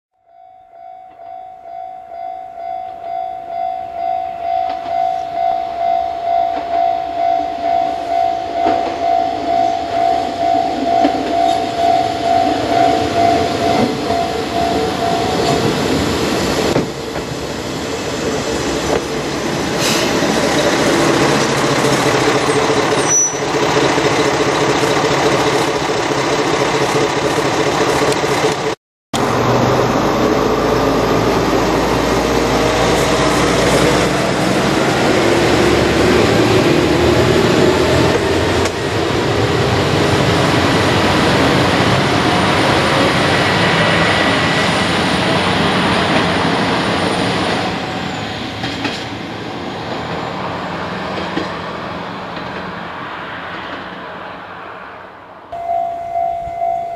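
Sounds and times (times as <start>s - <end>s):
railcar engine and wheels: 0.2s - 56.9s
level crossing bell ringing: 0.3s - 15.6s, 55.6s - 56.9s
high squeak: 22.4s - 23.6s.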